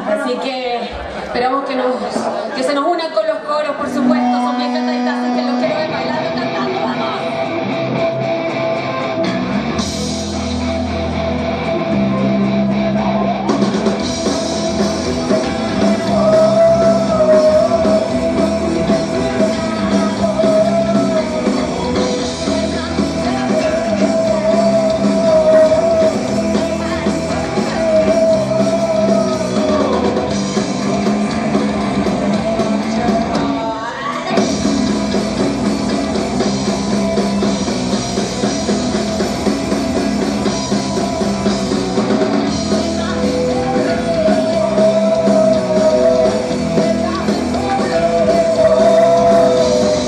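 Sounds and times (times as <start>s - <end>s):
bass guitar: 3.6s - 50.0s
distorted electric guitars: 3.7s - 50.0s
drum kit: 3.8s - 50.0s
woman singing: 15.8s - 29.4s, 42.8s - 50.0s.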